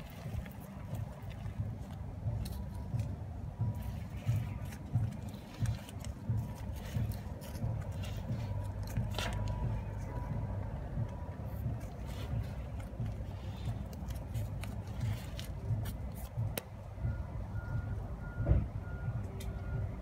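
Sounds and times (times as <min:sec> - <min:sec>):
handling clicks and rustles: 0:00.0 - 0:17.8
vehicle engine rumbling: 0:00.0 - 0:20.0
reversing alarm beeping: 0:17.0 - 0:20.0.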